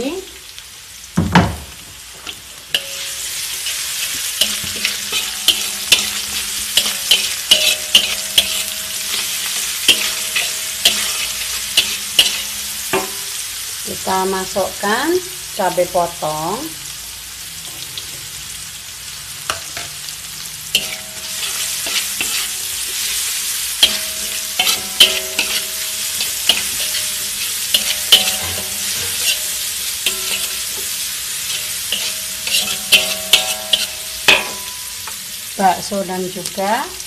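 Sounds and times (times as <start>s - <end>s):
chillies sizzling in oil: 0.0s - 37.0s
metal spatula scraping wok: 2.2s - 13.8s, 19.4s - 35.6s.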